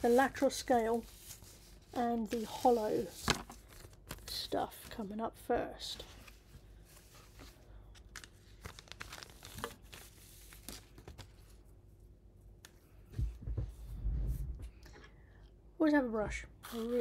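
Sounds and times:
synthetic material crinkling: 6.2 - 11.7.

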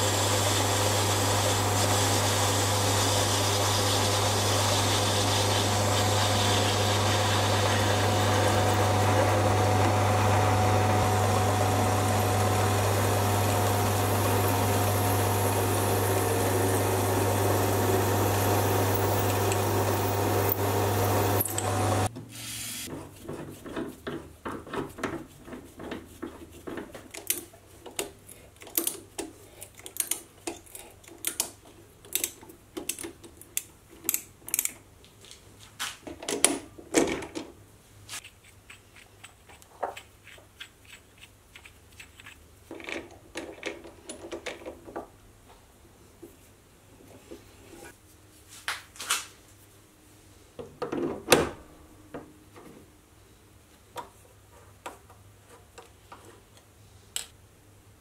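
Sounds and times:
metal lathe humming: 0.0 - 22.1
metallic clicks and scrapes: 26.2 - 34.8.

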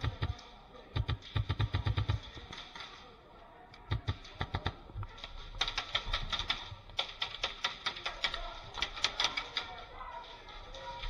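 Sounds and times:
airsoft guns firing: 0.0 - 3.0, 3.9 - 9.7.

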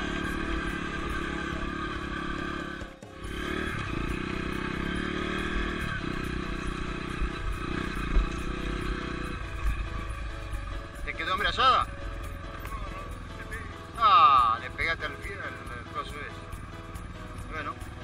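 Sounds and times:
dirt bike engine revving: 0.0 - 12.7.

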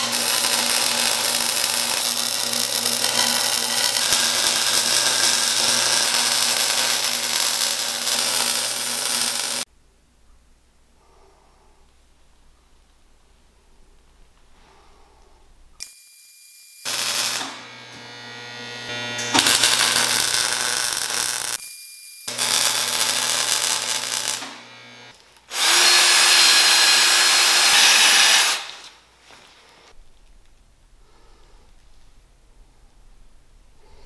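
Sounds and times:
arc welding: 0.0 - 9.7, 16.8 - 21.6, 22.3 - 28.9.

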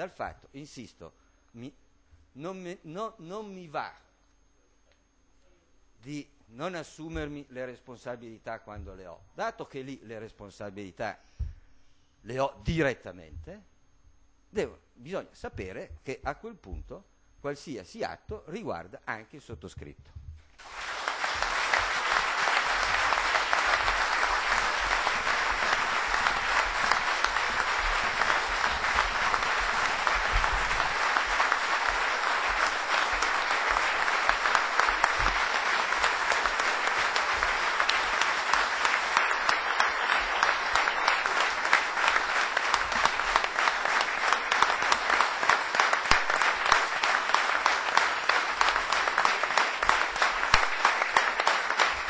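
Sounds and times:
large audience applauding: 20.6 - 52.0.

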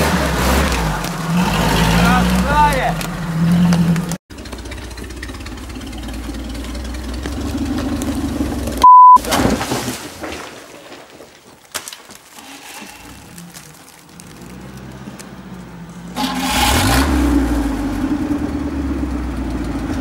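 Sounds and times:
distant engine climbing: 0.0 - 8.9, 13.5 - 20.0
off-road engines running: 0.0 - 8.9, 12.3 - 20.0
loud steady beep: 8.8 - 9.2.

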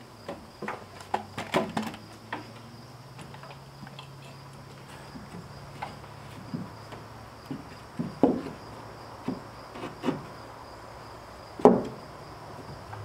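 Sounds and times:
insects buzzing: 0.0 - 13.0
board knocking against wood: 5.2 - 10.3, 11.6 - 12.0.

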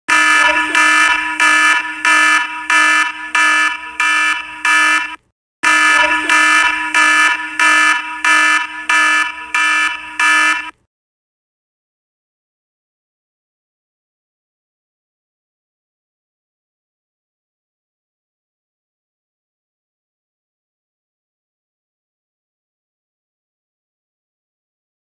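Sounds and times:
electronic alarm beeping: 0.1 - 10.8
steady low tone: 0.2 - 10.7.

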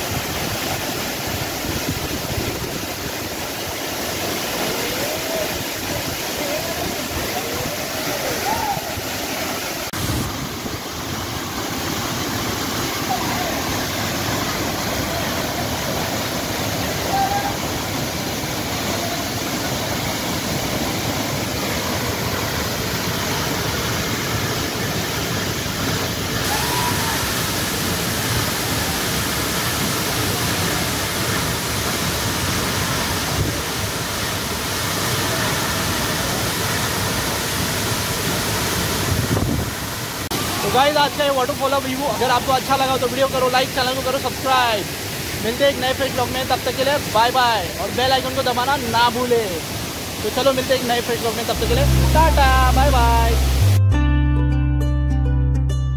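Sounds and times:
waterfall rushing: 0.0 - 53.9
wind buffeting microphone: 39.1 - 39.8.

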